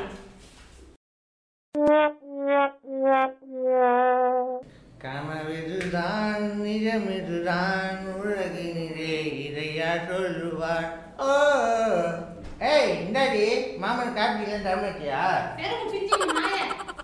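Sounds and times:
man singing: 5.0 - 12.3.

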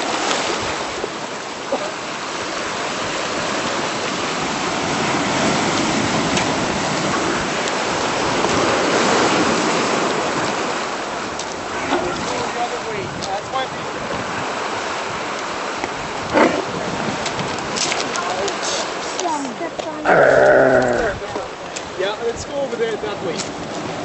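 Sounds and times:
surf washing over rocks: 0.0 - 24.0.

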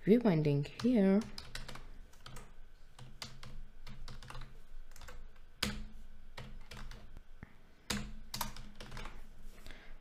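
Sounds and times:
computer keyboard typing: 0.7 - 7.2, 7.9 - 9.2.

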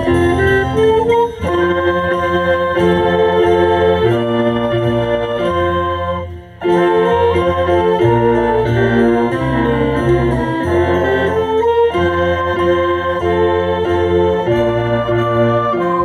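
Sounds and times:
orchestra playing held chords: 0.0 - 16.0.

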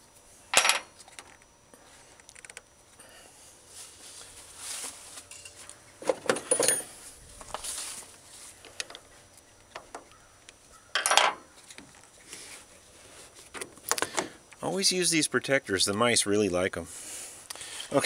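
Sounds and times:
metal clanks of battery terminal: 5.3 - 6.9.

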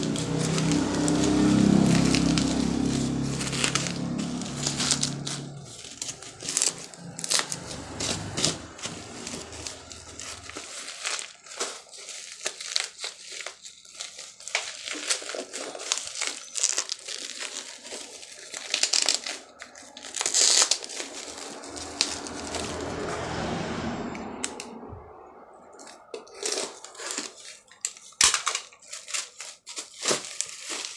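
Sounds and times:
plastic bag crinkling: 0.0 - 23.6, 25.7 - 30.9.

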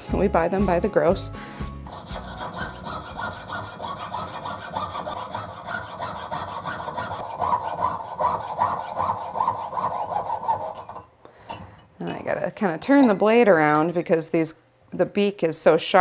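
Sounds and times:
saw blade rasping through metal: 1.8 - 11.0.

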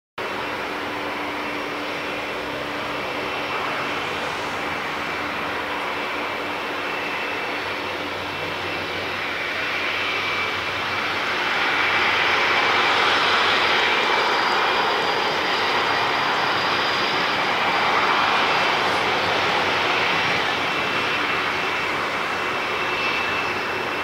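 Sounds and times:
jet engines at taxi power: 0.2 - 24.0.

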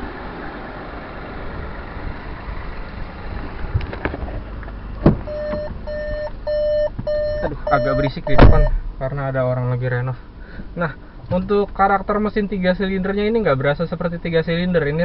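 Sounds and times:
car engine idling: 0.0 - 15.0
car door clicks: 5.0 - 5.9, 8.3 - 8.8
car warning chime beeping: 5.3 - 8.8.

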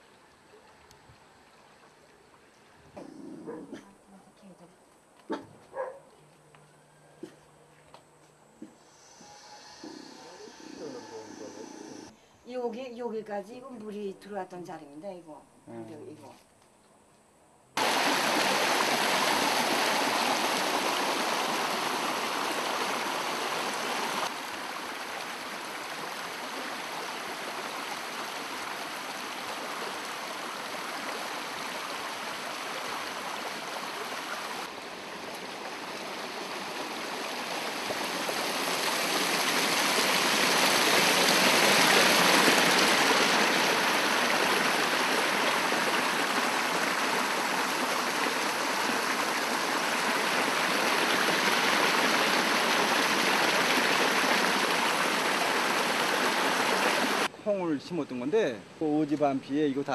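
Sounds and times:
stream rushing water: 17.8 - 57.3.

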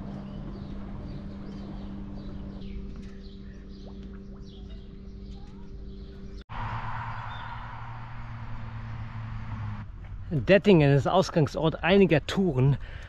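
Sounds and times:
small birds chirping: 0.0 - 6.4
steady low hum: 0.0 - 10.8.

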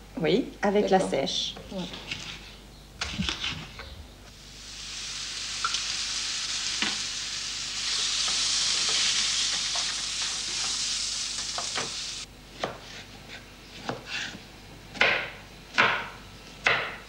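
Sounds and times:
food sizzling in frying pan: 4.3 - 12.3.

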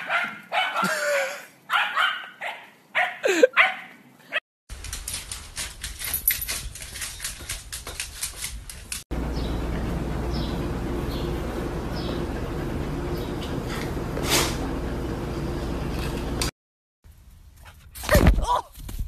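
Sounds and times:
dog barking: 0.0 - 1.0, 1.7 - 4.4.

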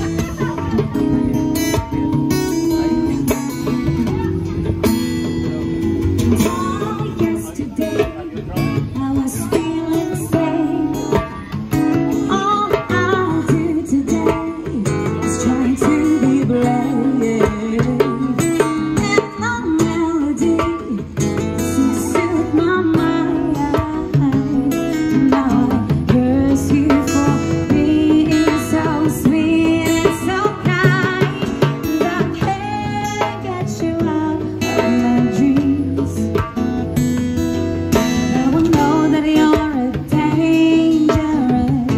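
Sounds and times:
hand drum beating: 0.0 - 41.9
strummed acoustic guitar: 0.0 - 41.9
woman singing into microphone: 6.2 - 37.1, 37.9 - 41.9.

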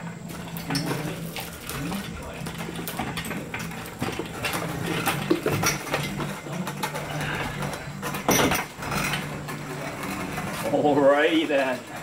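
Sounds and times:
engine hoist rolling on casters: 0.0 - 12.0.

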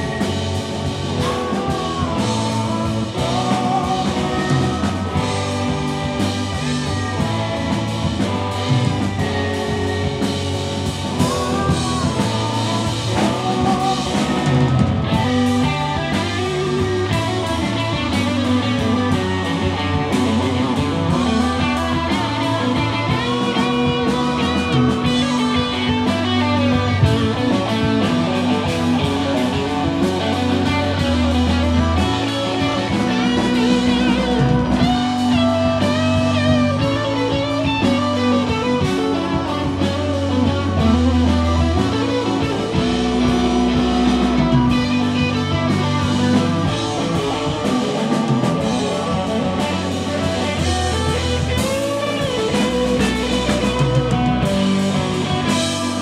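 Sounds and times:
bass guitar: 0.0 - 56.0
drums: 0.0 - 56.0
electric guitar: 0.0 - 56.0
keyboards: 0.0 - 56.0
man singing: 1.2 - 6.5, 11.4 - 28.3.

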